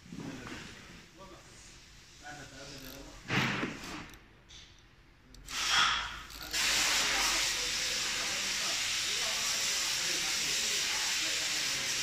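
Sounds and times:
steady hiss: 5.4 - 12.0.

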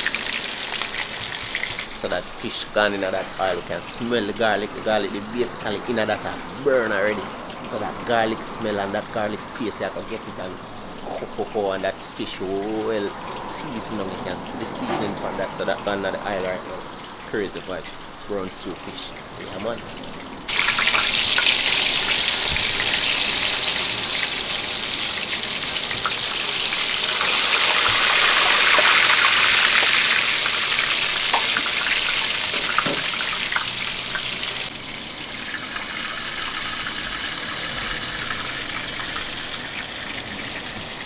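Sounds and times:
fish sizzling in hot oil: 0.0 - 13.6, 20.0 - 41.0
oil popping: 0.0 - 41.0.

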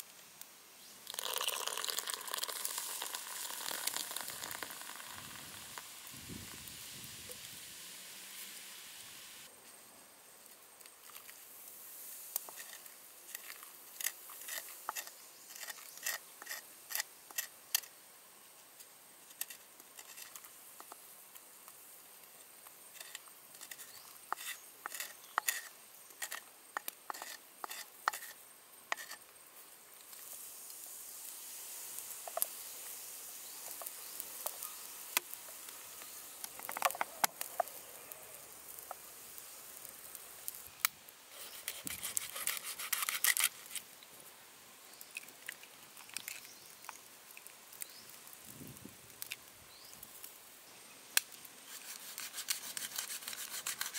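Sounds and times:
steady hiss: 0.0 - 53.9
stick scraping and tapping a dish: 12.4 - 17.9, 23.0 - 29.2.

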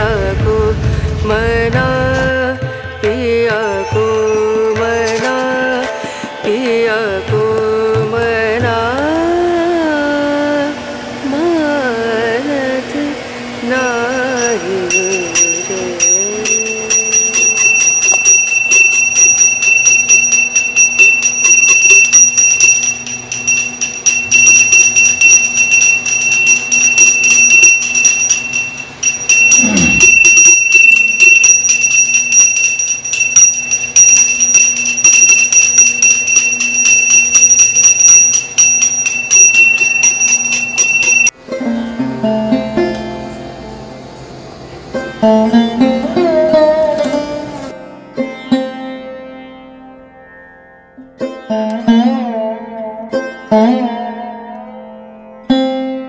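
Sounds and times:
bell rung rapidly: 14.4 - 41.3.

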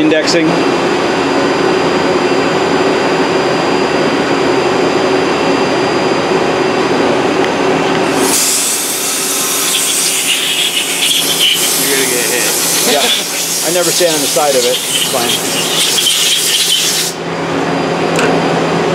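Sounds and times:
lathe humming with fixed tones: 8.0 - 17.2
compressed air blow gun hissing: 8.1 - 17.2.

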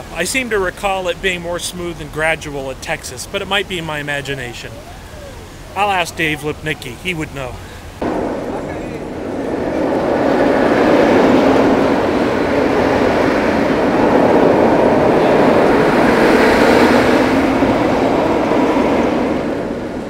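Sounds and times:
roller coaster wheels roaring: 0.0 - 20.0.

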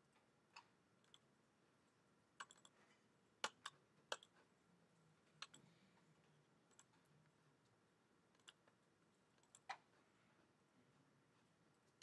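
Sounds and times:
computer mouse and keyboard clicks: 2.4 - 2.8, 3.4 - 4.5, 5.4 - 5.7, 6.7 - 7.1, 8.4 - 8.8, 9.4 - 9.9.

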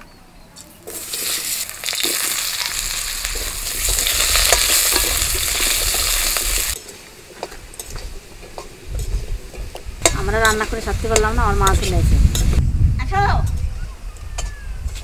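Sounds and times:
potatoes sizzling in hot oil: 0.8 - 12.6.

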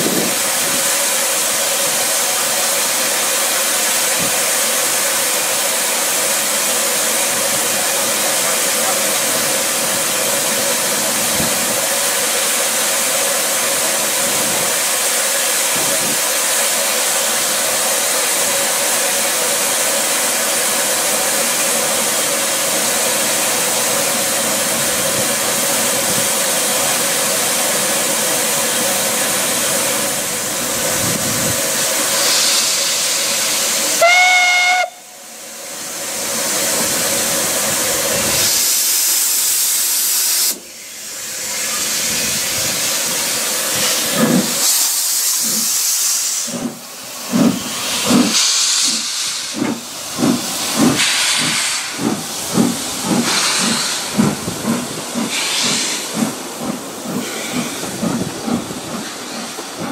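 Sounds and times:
steam locomotive hissing: 0.0 - 59.9
steam whistle blast: 33.9 - 35.2
locomotive exhaust beats: 46.5 - 59.9.

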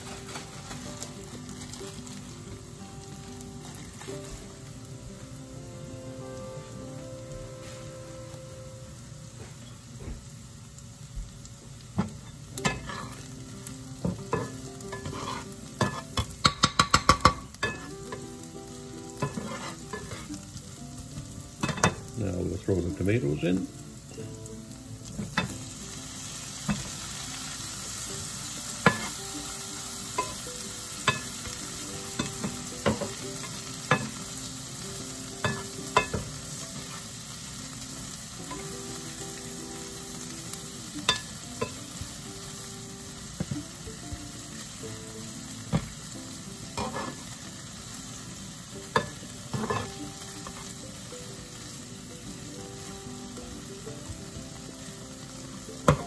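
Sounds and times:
food sizzling in a frying pan: 0.0 - 56.0
spatula and fork scraping pan: 12.7 - 13.3, 14.3 - 16.2, 19.2 - 20.4, 46.7 - 47.3, 49.0 - 50.6.

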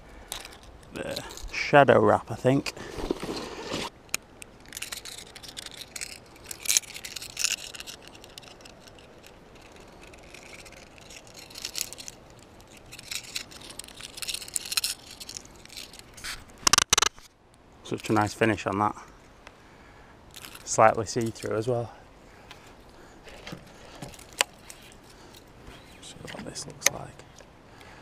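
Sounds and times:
rustles and scrapes: 0.0 - 19.3, 20.3 - 27.5
plastic lure handling noise: 0.2 - 1.7, 2.5 - 17.3, 20.3 - 21.6, 22.4 - 27.5
sharp click: 16.6 - 17.3.

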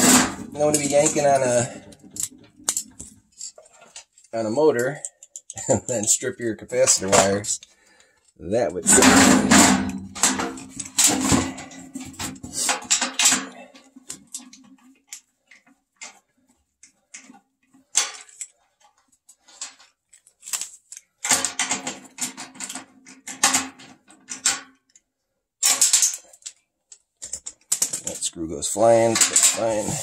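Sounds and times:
tool clicks and metal clinks: 0.0 - 6.0, 25.6 - 30.0.

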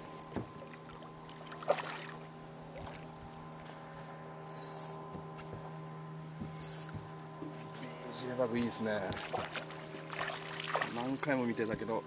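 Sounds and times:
low hum: 0.0 - 12.0
fish splashing at water surface: 0.6 - 3.1, 9.1 - 11.2.

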